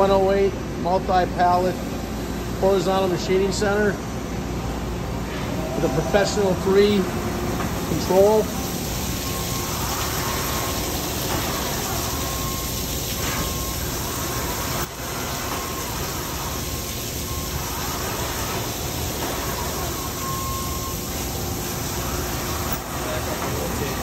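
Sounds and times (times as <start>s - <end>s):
faint machine whine: 0.0s - 24.0s
machine noise: 0.0s - 24.0s
coolant spraying: 5.5s - 24.0s.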